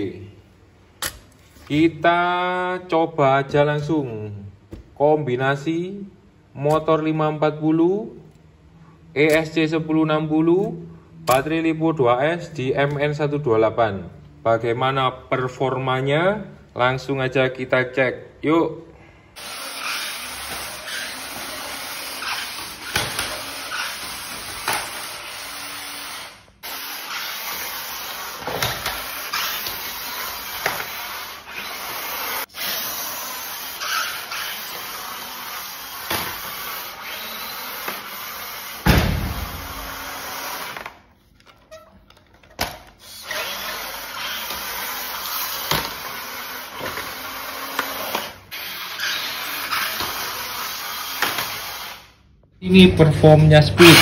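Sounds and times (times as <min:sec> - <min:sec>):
electric motor and drivetrain whir: 0:19.4 - 0:41.0.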